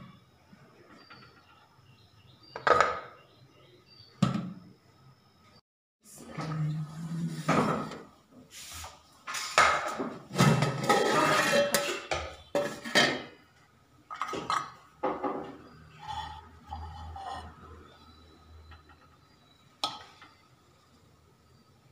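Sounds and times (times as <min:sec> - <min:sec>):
lid and spoon scraping metal pot: 0:10.3 - 0:13.3.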